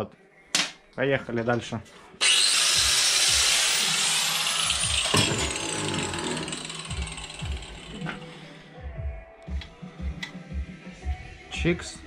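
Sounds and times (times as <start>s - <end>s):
angle grinder grinding metal: 2.2s - 8.6s
grinder disc whine: 2.2s - 8.6s.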